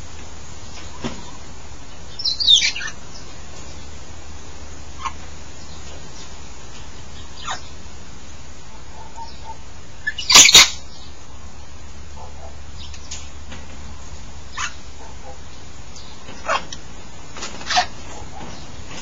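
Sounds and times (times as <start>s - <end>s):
parrot harsh squawk: 10.0s - 10.8s, 17.6s - 17.9s.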